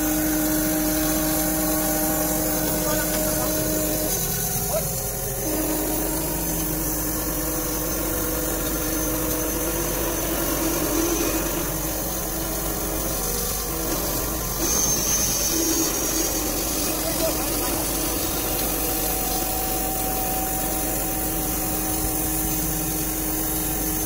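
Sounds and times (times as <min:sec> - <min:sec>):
band sawmill droning: 0:00.0 - 0:24.0.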